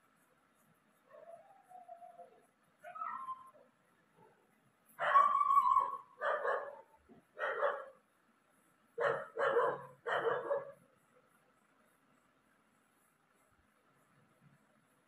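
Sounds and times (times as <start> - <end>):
dog barking: 5.0 - 8.0, 9.0 - 10.8.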